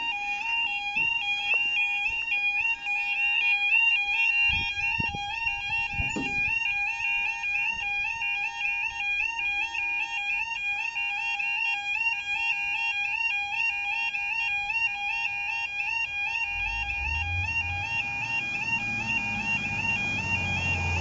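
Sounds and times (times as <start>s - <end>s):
two-tone warble alarm: 0.0s - 21.0s
low thump: 5.8s - 6.7s.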